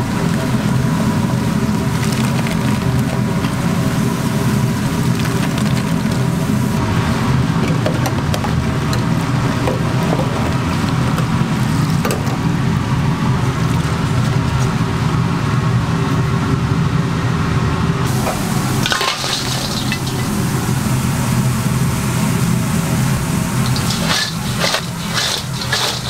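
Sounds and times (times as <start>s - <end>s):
low steady hum: 8.4s - 26.0s
chips sizzling in hot oil: 18.1s - 26.0s
chips clattering into metal bowl: 18.8s - 20.3s, 23.7s - 26.0s.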